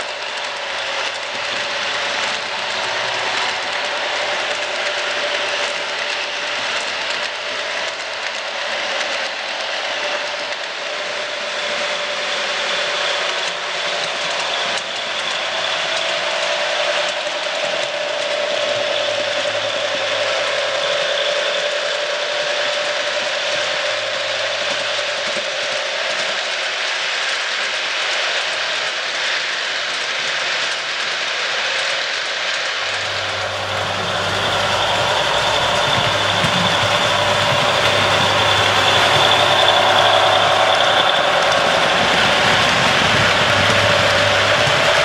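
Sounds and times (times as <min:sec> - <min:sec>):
model train whirring and rattling: 0:00.0 - 0:45.0
model diesel engine sound: 0:32.8 - 0:45.0
steady hum: 0:32.8 - 0:45.0.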